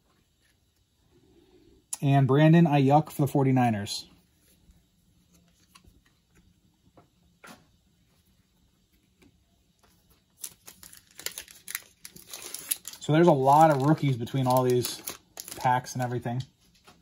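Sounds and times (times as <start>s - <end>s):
foil wrapper crinkling: 10.3s - 16.4s.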